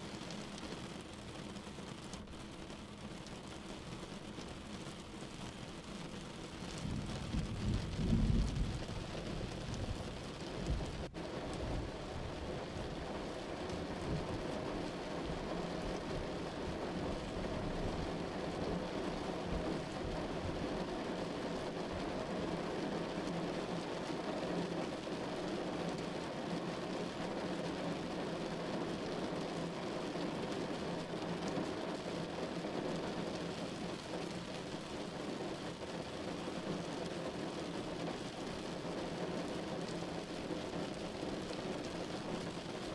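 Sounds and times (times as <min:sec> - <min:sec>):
steady rain hiss: 0:00.0 - 0:42.9
low rumble of thunder: 0:06.8 - 0:12.6.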